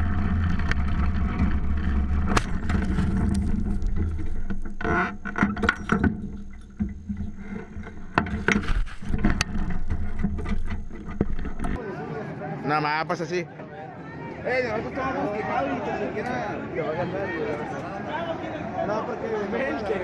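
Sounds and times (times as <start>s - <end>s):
buggy engine droning: 0.0s - 11.8s
knocks and clattering: 0.3s - 11.8s
frame rattling: 0.6s - 11.8s.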